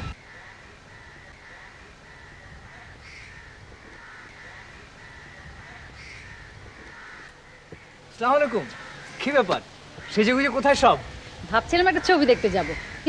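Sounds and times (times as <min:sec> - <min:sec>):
crows cawing: 0:00.0 - 0:13.0
outdoor background hiss: 0:00.0 - 0:13.0.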